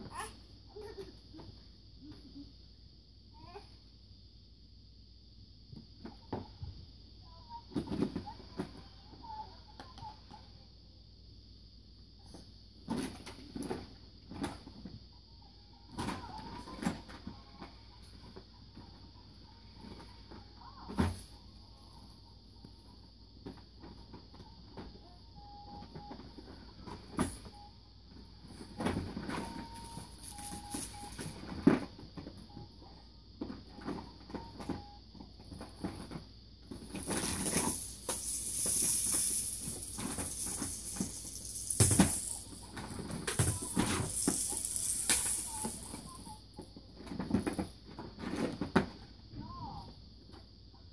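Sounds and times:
plastic toys clattering: 29.0s - 31.6s, 36.7s - 46.3s
crinkly rustling: 29.8s - 31.4s, 36.8s - 46.3s.

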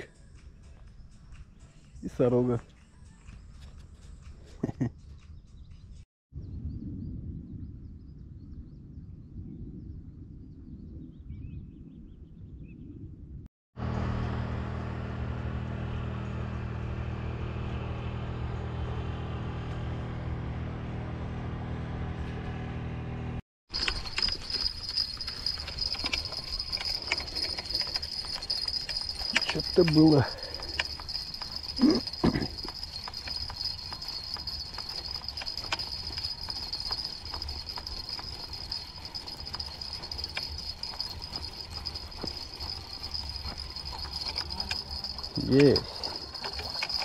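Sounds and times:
wind rumble on microphone: 5.4s - 13.4s
low hum: 6.4s - 47.0s
fishing reel whirring and clicking: 23.7s - 47.0s.

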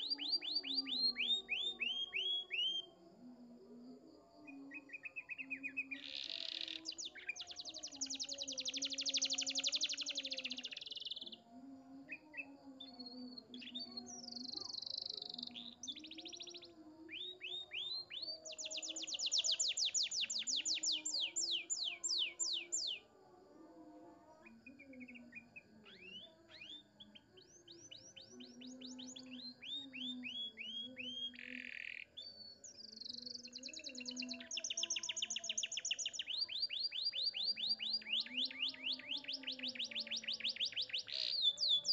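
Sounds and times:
canary singing trills: 0.0s - 2.9s, 4.5s - 23.1s, 24.4s - 41.9s.

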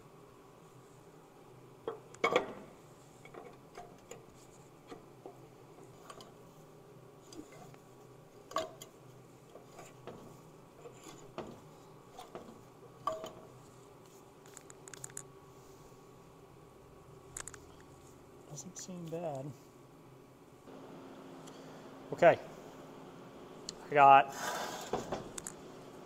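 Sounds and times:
small ticks: 14.4s - 15.3s, 17.4s - 17.9s.

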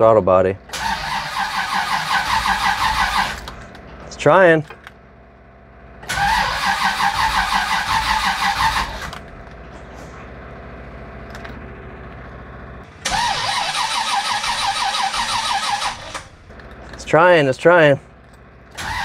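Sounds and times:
engine starter cranking: 0.7s - 3.9s, 6.0s - 9.5s, 12.9s - 17.2s, 18.2s - 19.0s.

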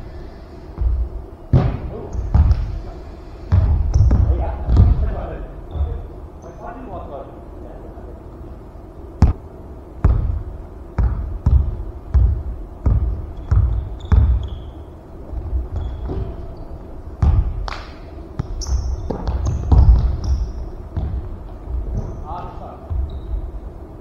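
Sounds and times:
basketball bouncing on wooden floor: 3.5s - 5.0s, 10.0s - 10.4s, 11.0s - 14.6s, 17.2s - 17.6s, 18.4s - 22.2s
short high squeaks: 13.3s - 15.0s, 15.7s - 16.9s, 18.6s - 20.7s, 23.0s - 23.5s.

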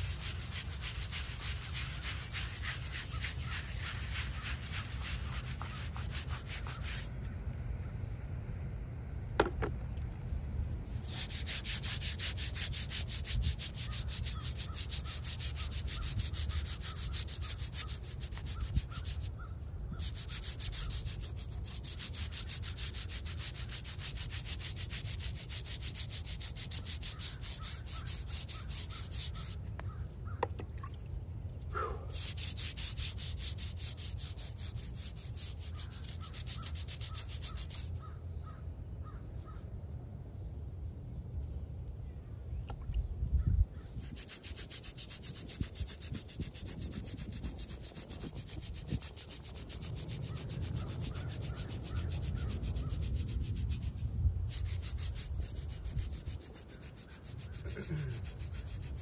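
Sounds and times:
brush scrubbing stone: 0.0s - 7.1s, 10.8s - 19.3s, 20.0s - 29.9s, 32.1s - 38.0s, 43.8s - 59.0s
sharp tap: 9.4s - 9.8s.

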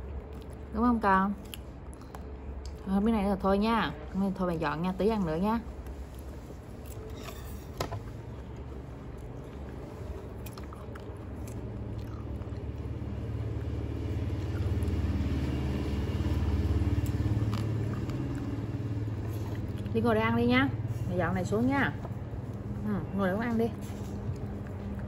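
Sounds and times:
monkey chewing fruit: 5.9s - 25.0s
vehicle engine passing: 9.3s - 25.0s.

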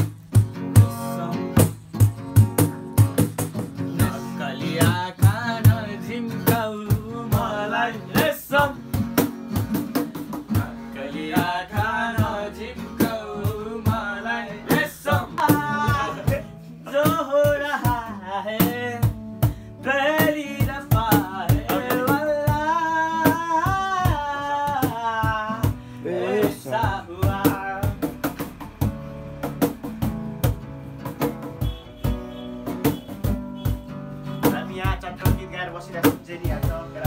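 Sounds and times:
percussive hits: 0.0s - 4.2s, 8.1s - 11.6s, 20.2s - 35.4s
acoustic guitar strumming: 0.0s - 37.0s
young man singing: 0.4s - 28.4s, 34.3s - 37.0s.

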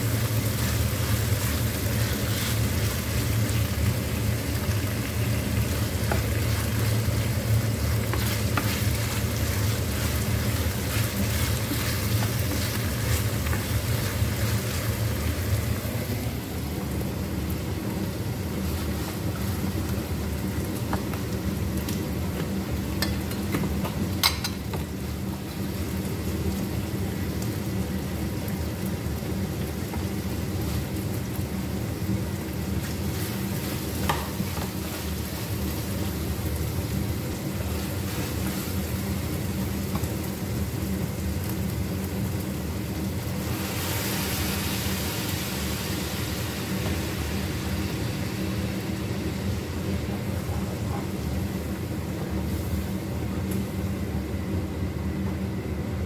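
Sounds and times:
food sizzling in a pan: 0.0s - 54.4s
constant low hum: 0.0s - 56.0s.

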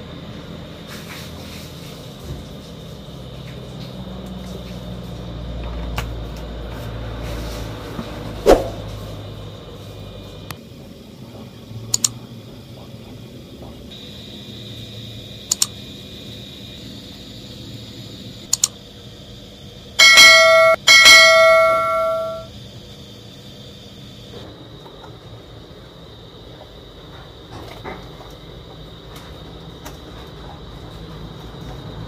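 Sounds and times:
mouse clicks: 15.5s - 15.7s, 18.5s - 18.7s
bell ringing: 20.0s - 22.5s.

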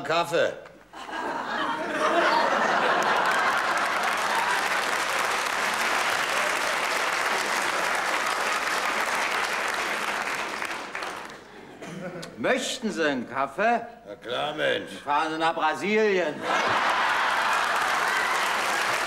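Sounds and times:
audience applauding: 2.3s - 11.6s, 16.5s - 19.0s.

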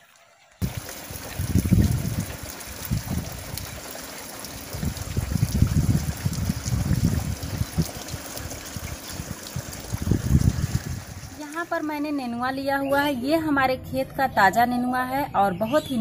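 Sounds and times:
water running and trickling: 0.0s - 12.7s.

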